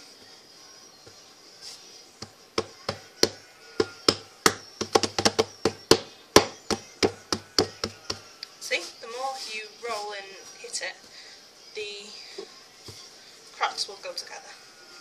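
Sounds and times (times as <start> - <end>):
dough knocking on work surface: 2.2 - 8.3.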